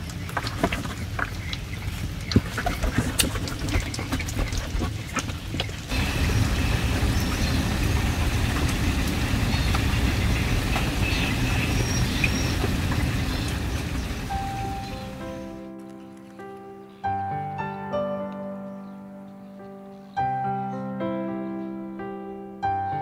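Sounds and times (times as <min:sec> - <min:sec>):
plastic baskets and boxes clattering: 0:00.0 - 0:08.9
rain falling on a pond: 0:00.0 - 0:15.6.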